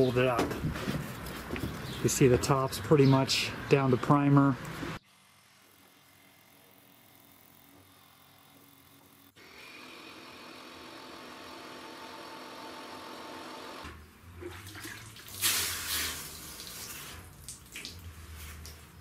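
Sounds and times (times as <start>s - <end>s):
water splashing from rag and bucket: 14.4s - 18.9s.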